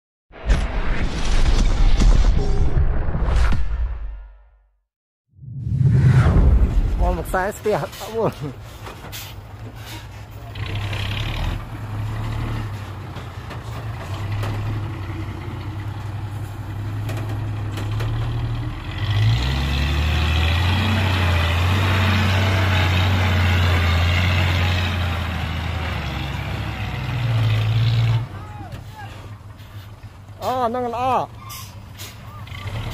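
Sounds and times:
diesel truck engine running: 0:07.4 - 0:32.9.

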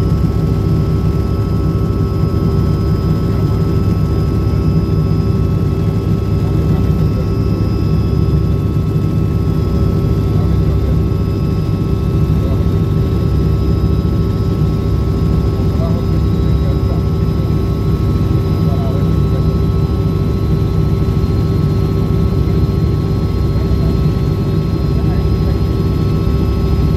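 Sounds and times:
helicopter engine and rotor drone: 0:00.0 - 0:26.9.

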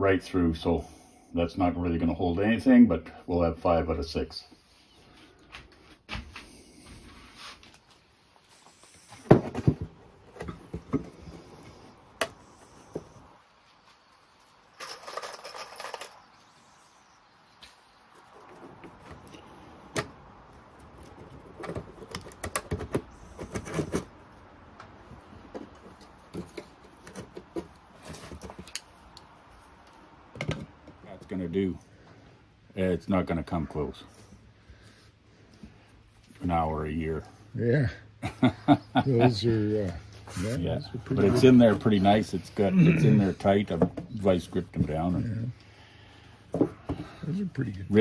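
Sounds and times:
metal parts clicking and knocking: 0:14.8 - 0:16.3.

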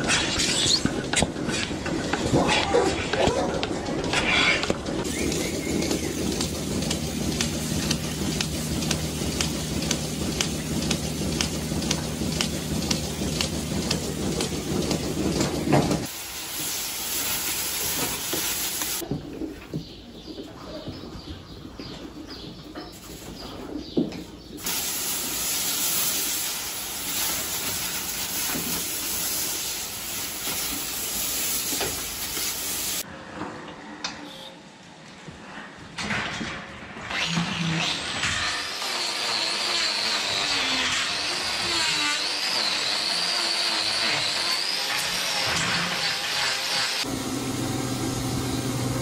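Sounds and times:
regular ticking: 0:05.8 - 0:15.3
milking machine air hiss: 0:24.6 - 0:33.0.

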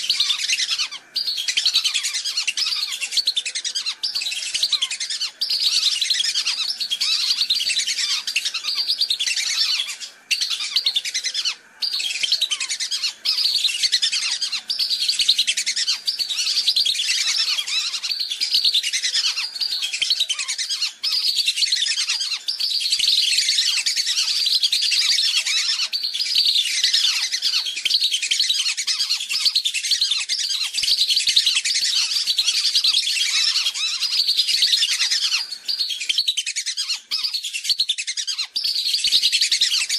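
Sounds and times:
whistling ducks calling: 0:00.0 - 0:39.9.

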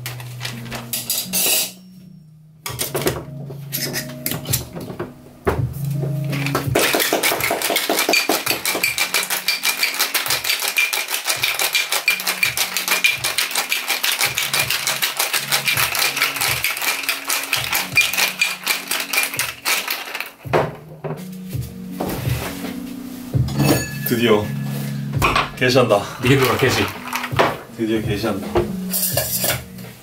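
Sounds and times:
ice cubes rattling in a shaker: 0:06.4 - 0:20.5, 0:26.2 - 0:27.4.

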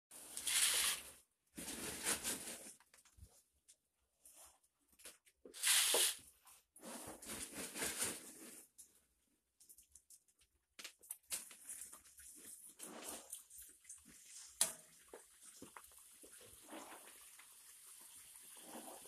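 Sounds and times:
oil sizzling in deep fryer: 0:14.6 - 0:19.0.

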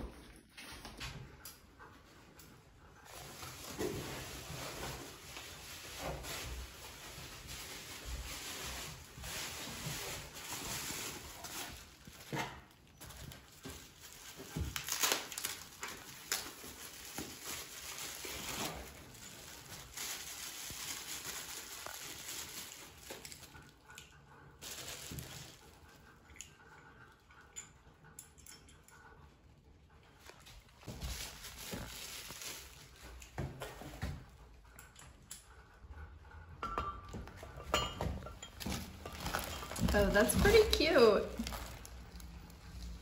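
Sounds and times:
packaging rustling and crinkling: 0:03.1 - 0:23.6, 0:24.6 - 0:25.8, 0:30.8 - 0:33.8, 0:38.2 - 0:43.0.

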